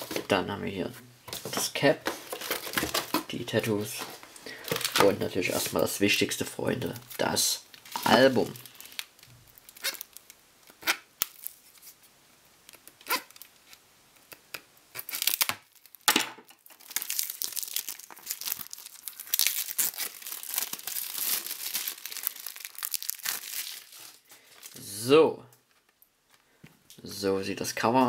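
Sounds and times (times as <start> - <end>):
plastic wrap crinkling and tearing: 2.0 - 5.8, 6.9 - 24.8.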